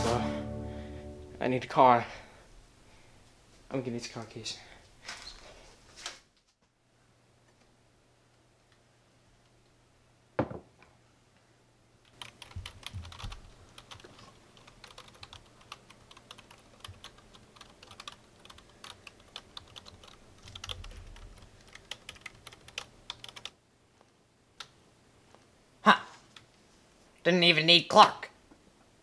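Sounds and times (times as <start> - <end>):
mug set down on wooden desk: 10.4 - 10.7
computer keyboard typing: 12.1 - 23.5.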